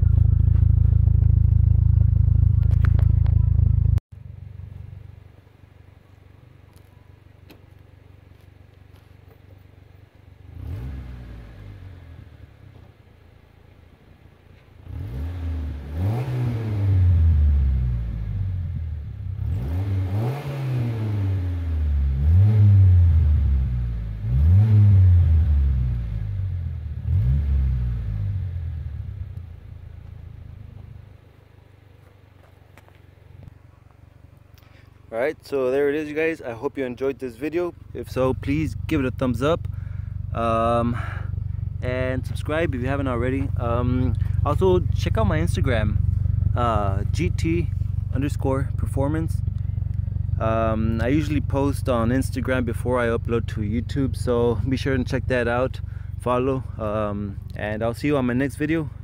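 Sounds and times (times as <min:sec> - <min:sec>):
car engine idling and revving: 0:00.0 - 0:59.0.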